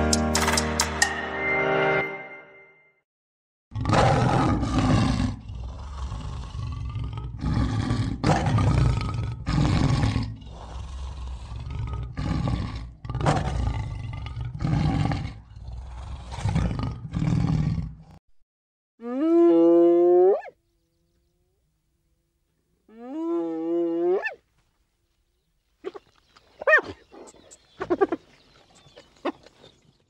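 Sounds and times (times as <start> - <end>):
lion roaring: 3.8 - 18.2.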